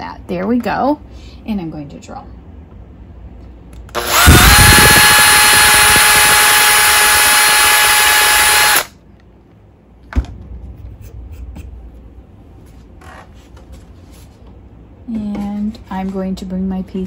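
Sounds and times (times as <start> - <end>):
cordless drill whining: 3.9 - 8.9.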